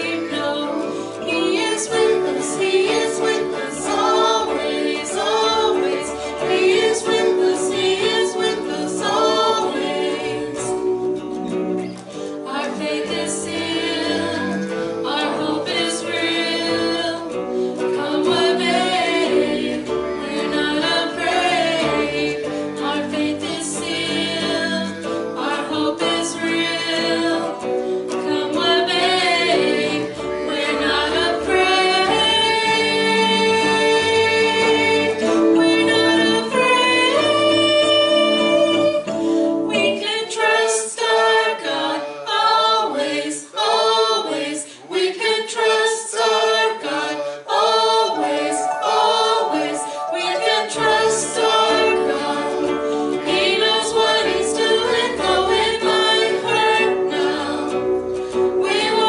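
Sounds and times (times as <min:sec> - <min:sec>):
bass: 0:00.0 - 0:39.9
keyboard: 0:00.0 - 0:40.6, 0:46.8 - 0:59.0
guitar: 0:00.0 - 0:59.0
women singing: 0:00.0 - 0:59.0.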